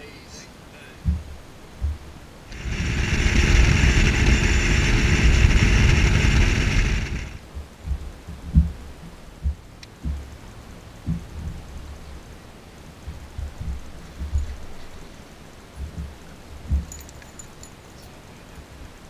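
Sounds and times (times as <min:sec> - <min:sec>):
outboard motor running: 0:02.5 - 0:07.4.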